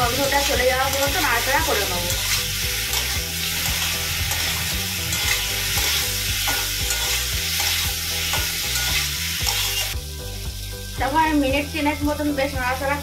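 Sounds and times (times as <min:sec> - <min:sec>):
food sizzling in hot oil: 0:00.0 - 0:13.0
metal spatula scraping a pan: 0:00.1 - 0:10.0.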